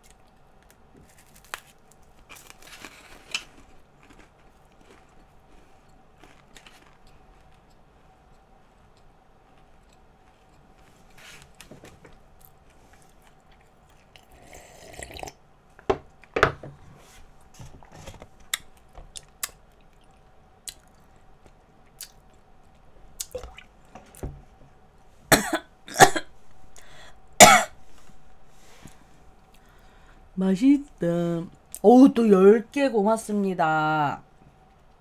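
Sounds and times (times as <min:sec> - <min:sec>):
woman coughing: 0:25.3 - 0:26.3, 0:27.4 - 0:27.8.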